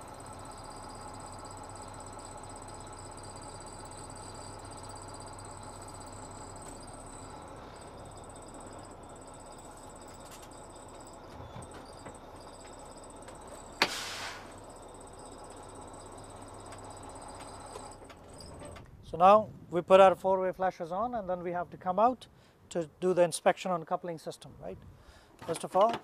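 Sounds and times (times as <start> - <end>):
diesel engine idling: 0.0 - 19.0
air brake hiss: 13.8 - 14.6.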